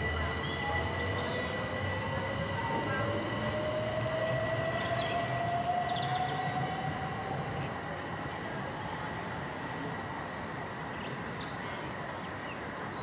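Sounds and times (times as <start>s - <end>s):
steady high tone: 0.0s - 8.0s
train traction motors whining: 0.0s - 11.0s
train running noise: 0.0s - 13.0s.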